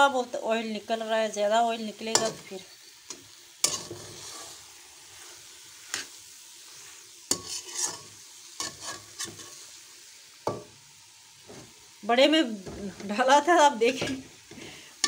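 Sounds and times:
food sizzling in oil: 0.0 - 15.0
metal spatula scraping pot: 3.6 - 4.7, 7.3 - 9.7.

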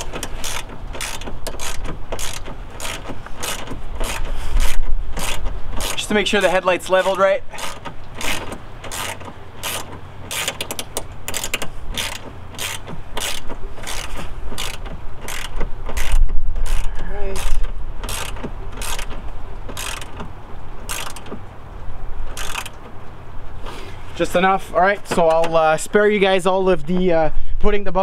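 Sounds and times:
ratchet wrench clicking: 0.0 - 6.0, 7.5 - 20.3, 20.9 - 21.4, 22.3 - 22.8
low rumble of handling noise: 0.0 - 28.0.

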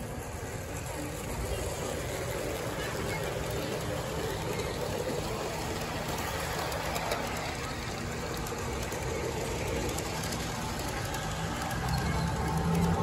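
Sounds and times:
model train wheels rumbling: 0.0 - 13.0.

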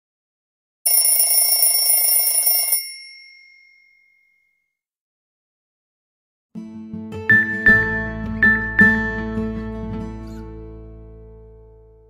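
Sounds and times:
rapid bell-like phone tone: 0.9 - 4.7.

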